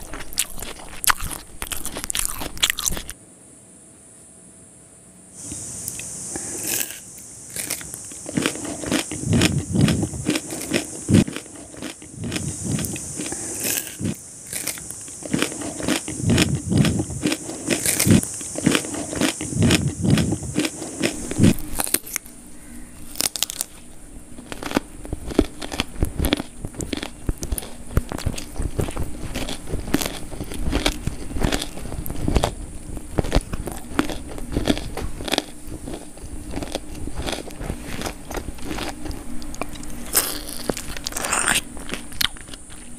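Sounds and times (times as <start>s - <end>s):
chewing: 0.0s - 3.2s, 5.4s - 42.9s
crunching bites: 0.0s - 3.2s, 5.4s - 42.9s
mouth clicks: 5.4s - 22.3s.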